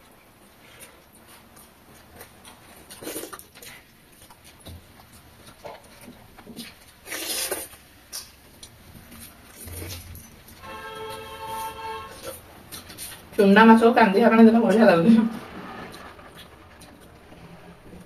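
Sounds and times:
chewing and mouth noises: 0.6s - 10.3s
loud rushing sound: 14.2s - 18.0s.

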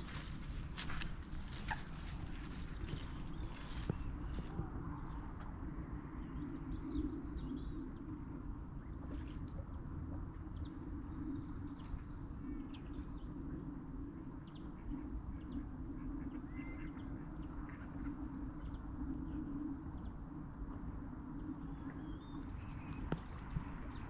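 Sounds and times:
small birds chirping: 0.0s - 5.2s
low background rumble: 0.0s - 24.0s.

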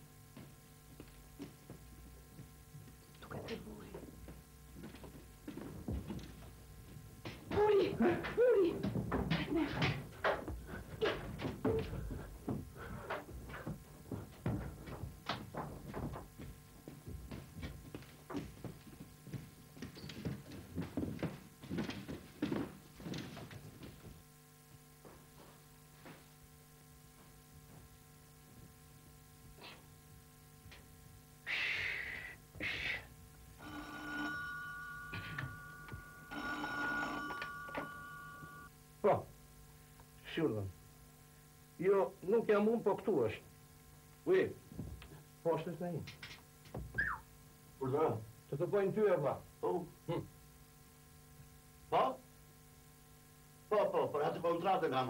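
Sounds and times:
steady high tones: 33.6s - 38.7s
telephone bell ringing: 33.6s - 38.7s.

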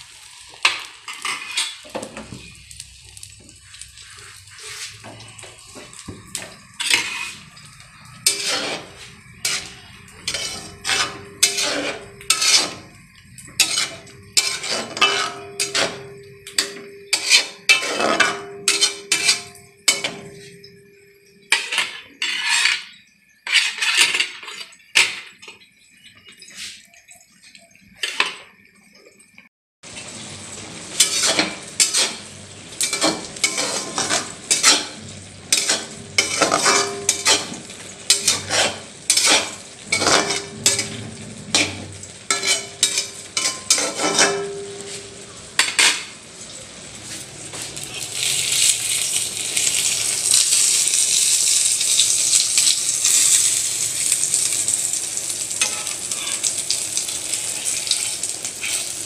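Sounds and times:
omelette sizzling in hot oil: 0.0s - 59.0s
metal spoon scraping steel pan: 1.1s - 2.5s, 4.0s - 20.8s, 21.5s - 25.4s, 31.0s - 46.1s, 55.6s - 56.6s, 57.5s - 59.0s.

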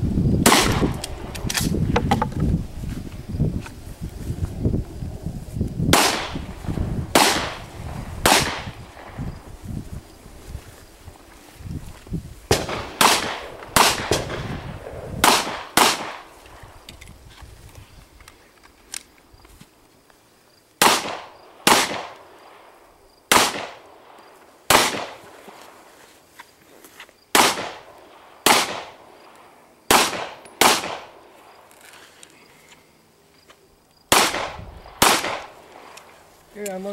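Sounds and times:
pistol shots: 0.4s - 1.0s, 5.9s - 6.4s, 7.1s - 7.6s, 8.2s - 9.1s, 12.5s - 16.3s, 20.8s - 22.2s, 23.3s - 23.9s, 24.7s - 25.4s, 27.3s - 29.0s, 29.9s - 31.2s, 34.1s - 36.0s.

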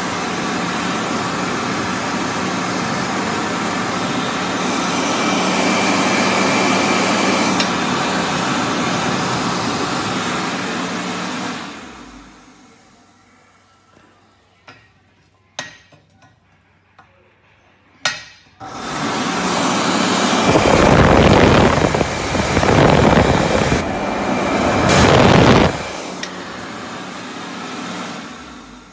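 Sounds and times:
electric hand dryer blowing air: 0.0s - 12.6s, 18.6s - 28.9s.

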